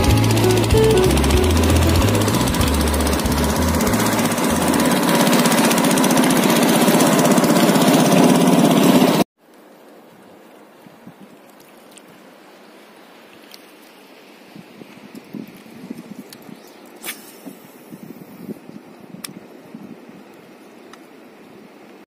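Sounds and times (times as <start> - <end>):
boat engine running: 0.0 - 9.2.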